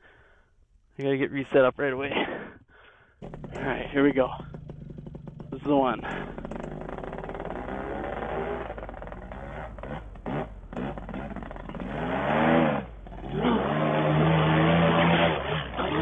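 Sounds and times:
paramotor engine revving: 3.2 - 16.0.

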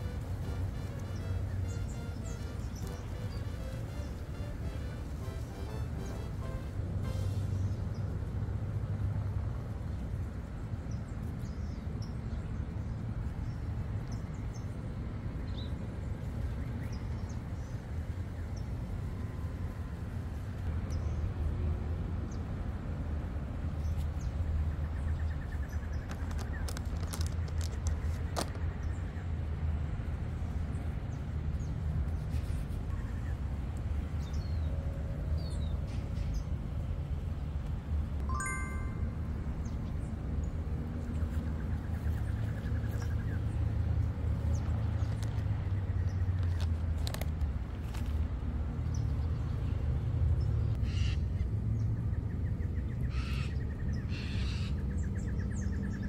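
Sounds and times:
steady low rumble: 0.0 - 10.9
plastic crackling clicks: 26.0 - 28.6
bird chirps: 38.3 - 39.9.

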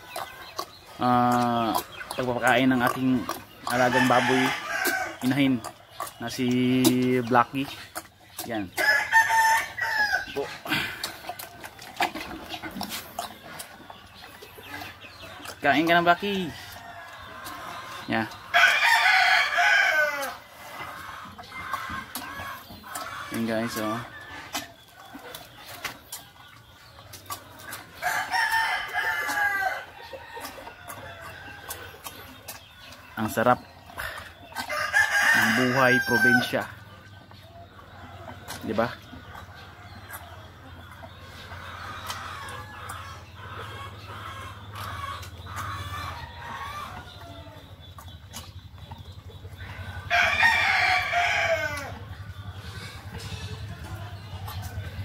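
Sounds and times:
chickens clucking: 0.0 - 55.0
rooster crowing: 8.8 - 10.2, 18.6 - 20.3, 28.0 - 30.4, 34.7 - 36.4, 50.0 - 52.0.

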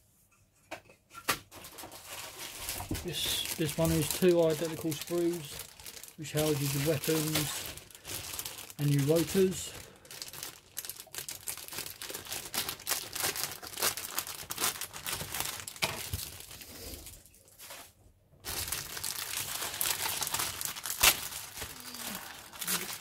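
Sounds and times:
plastic bag crinkling: 1.5 - 17.8, 18.4 - 23.0
sharp plastic crack: 20.0 - 21.7.

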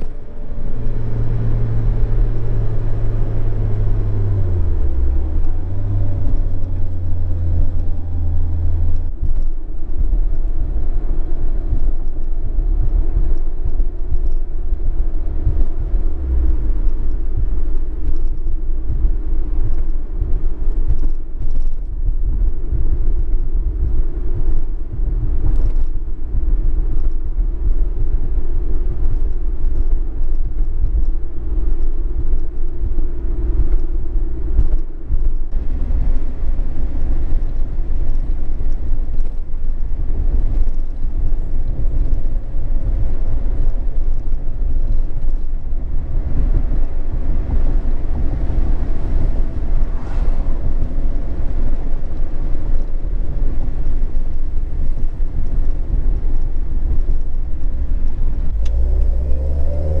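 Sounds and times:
car exhaust drone from inside cabin: 0.0 - 60.0.

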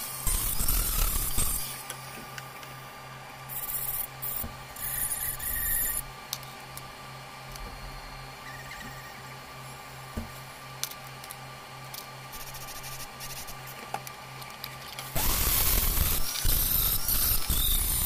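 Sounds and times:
rotary tool grinding metal: 0.0 - 1.8, 3.5 - 6.1, 15.1 - 18.0.

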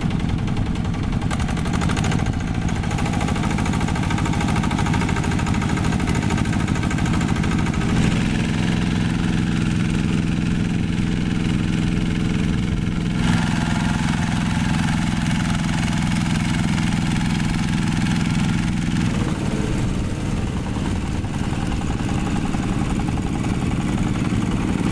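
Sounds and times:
diesel tractor engines running: 0.0 - 24.9.

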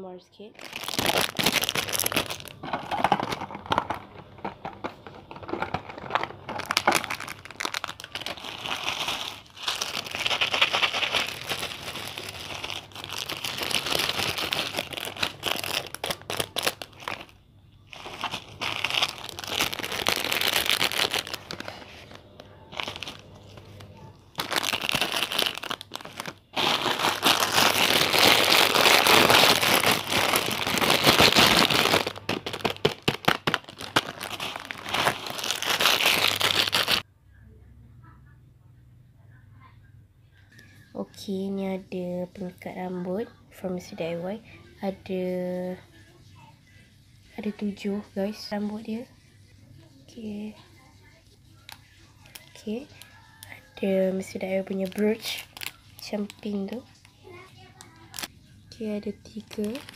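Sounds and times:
plastic packaging crinkling: 0.5 - 37.0, 51.6 - 58.3, 58.9 - 59.9.

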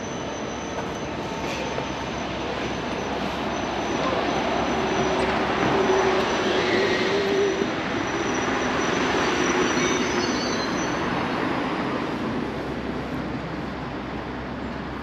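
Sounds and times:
train rumbling past: 0.0 - 15.0.

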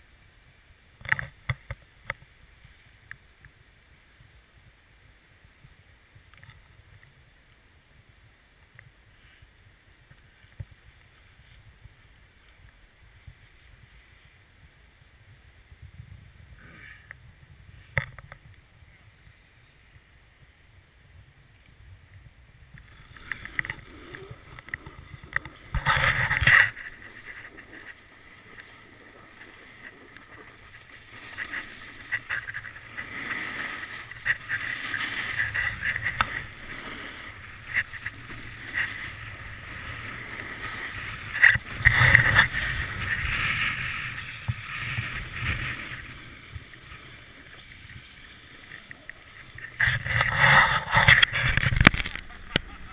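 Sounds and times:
snowboard scraping over snow: 8.9 - 52.9.

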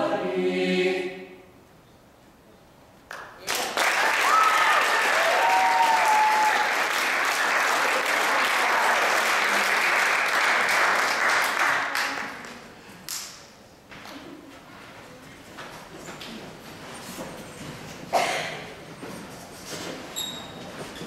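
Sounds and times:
audience applauding: 3.1 - 12.7
people whooping: 4.0 - 7.0.

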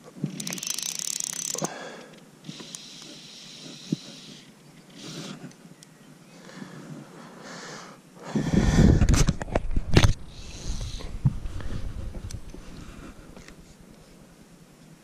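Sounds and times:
fishing reel ratchet buzzing: 0.3 - 1.7, 2.5 - 4.4.

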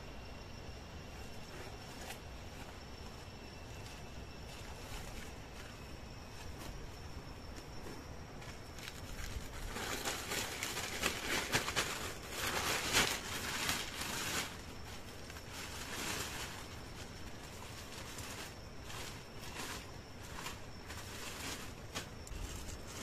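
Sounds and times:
plastic sheet crinkling: 9.0 - 23.0.

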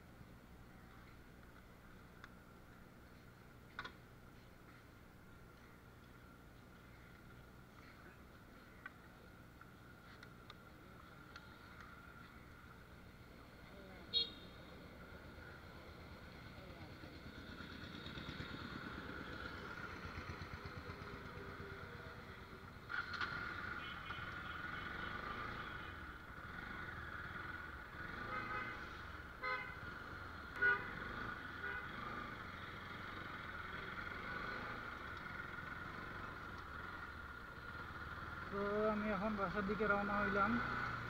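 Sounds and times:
vehicle horn toots: 14.1 - 14.5, 28.1 - 29.8, 30.6 - 31.0
motorcycle engine running: 15.0 - 29.3.

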